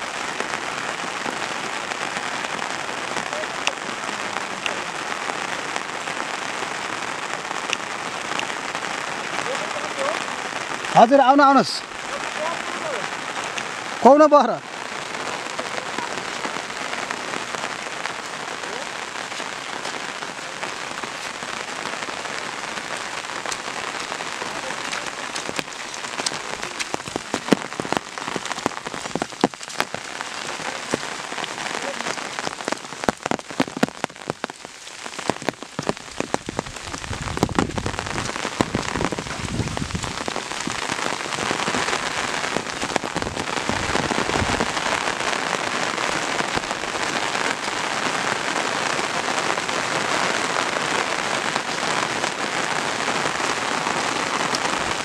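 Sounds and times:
rain on foliage and umbrella: 0.0 - 55.0
low rumbles on microphone: 35.9 - 41.8.

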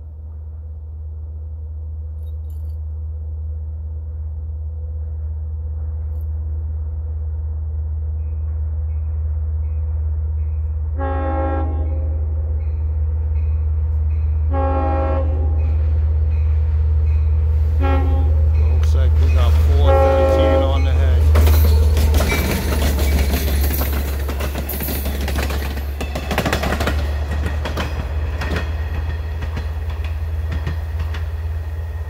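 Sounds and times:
diesel train rumble: 0.0 - 32.0
train air horn blasts: 11.0 - 12.6, 14.5 - 15.8, 17.7 - 18.6, 19.4 - 23.0.

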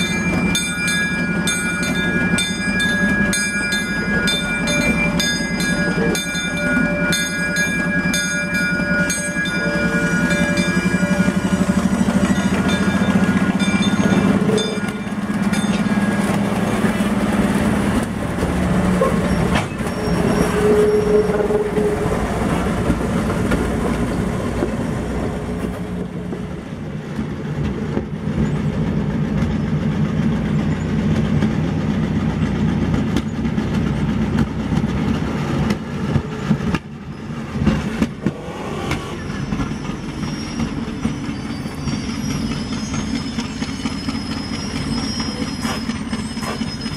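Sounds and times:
locomotive engine running: 0.0 - 46.9.

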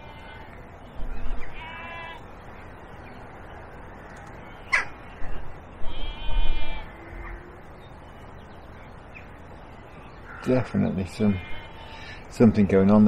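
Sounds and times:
crow cawing: 4.6 - 5.0, 10.2 - 12.2.

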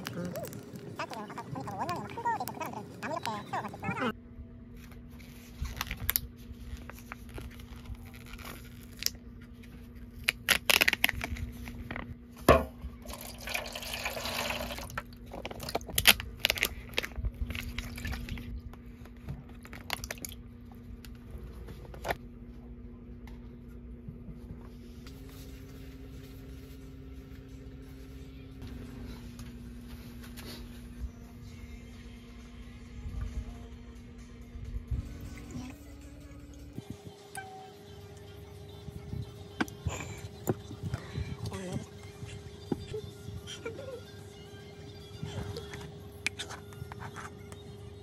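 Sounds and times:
liquid pouring and splashing: 13.1 - 15.8.

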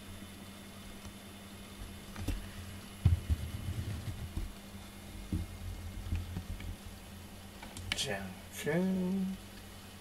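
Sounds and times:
soft knocks: 3.0 - 4.5.

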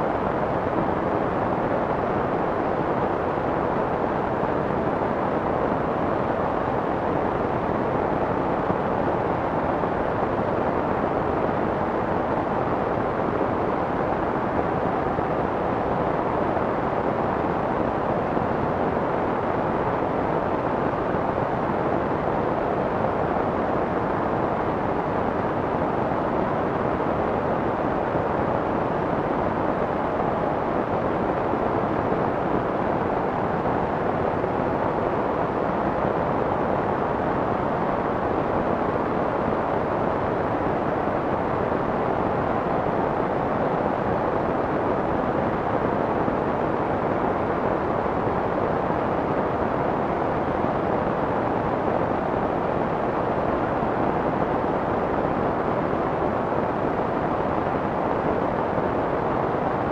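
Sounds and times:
muffled white noise hiss: 0.0 - 59.9.

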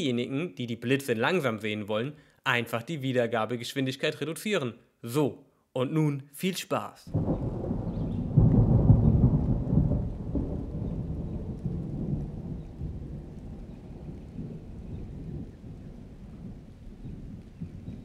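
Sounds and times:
rolling thunder: 7.1 - 18.0.

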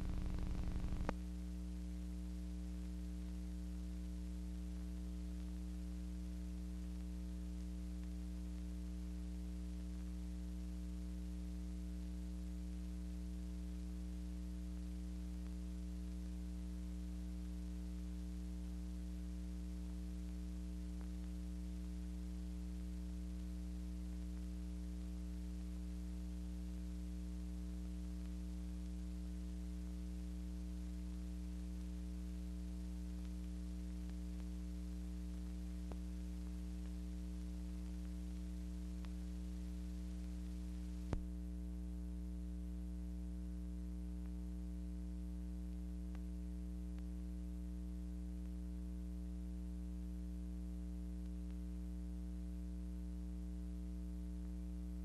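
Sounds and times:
faint hiss: 0.0 - 1.5
electrical mains hum: 0.0 - 55.0.

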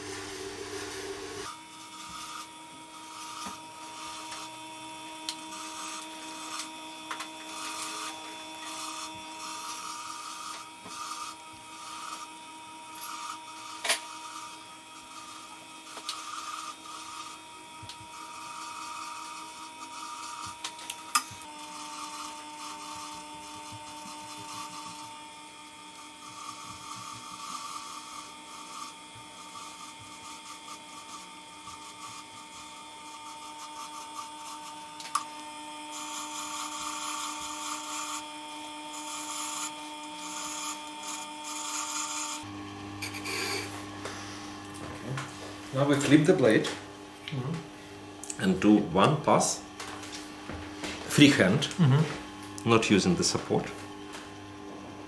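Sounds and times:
sharpener motor humming: 0.0 - 55.0
knife rubbing on felt wheel: 0.8 - 44.6.

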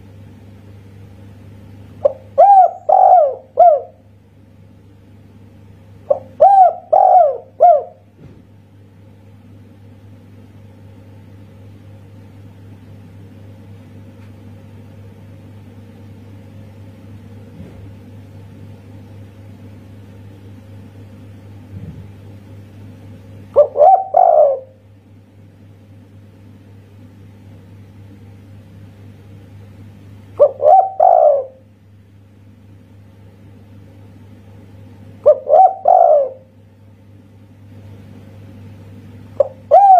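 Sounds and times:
low steady hum: 0.0 - 39.9
dove cooing: 2.0 - 4.1, 6.0 - 8.1, 23.5 - 24.9, 30.4 - 31.7, 35.2 - 36.6, 39.3 - 39.9.

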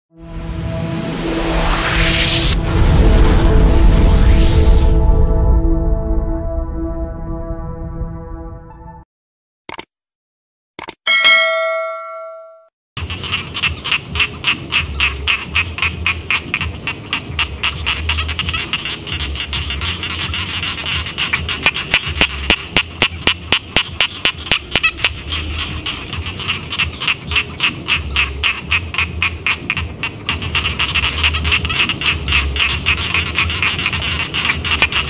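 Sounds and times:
low rumble: 0.4 - 8.4
frogs calling: 13.0 - 35.0.

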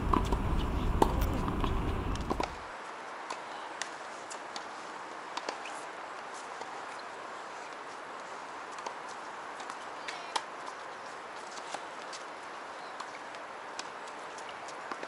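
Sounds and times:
low rumble: 0.0 - 2.6
tennis balls bouncing and struck: 0.0 - 2.6.

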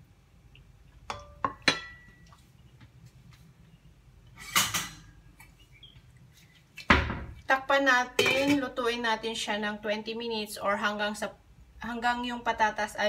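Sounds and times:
utensil clinking saucepan: 1.1 - 2.2.

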